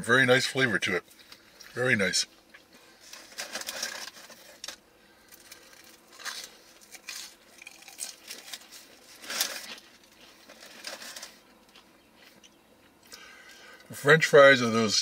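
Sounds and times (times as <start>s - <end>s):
foam container rustling and crinkling: 3.0s - 11.5s.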